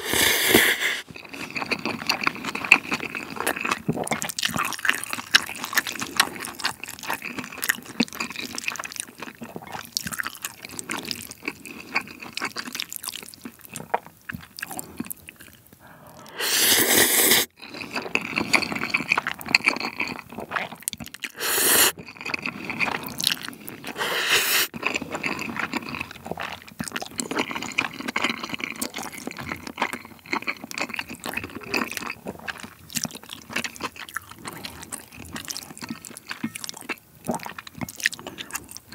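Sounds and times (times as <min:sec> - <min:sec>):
noodle slurps: 0:00.0 - 0:01.8, 0:15.8 - 0:18.9, 0:21.3 - 0:24.8
wet sticky chewing: 0:01.0 - 0:16.3, 0:17.4 - 0:38.9.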